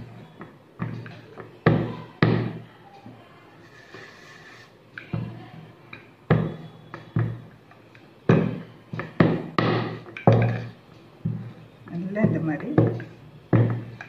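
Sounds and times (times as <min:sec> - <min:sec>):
rolling pin knocking on board: 0:08.3 - 0:11.4, 0:12.0 - 0:14.0.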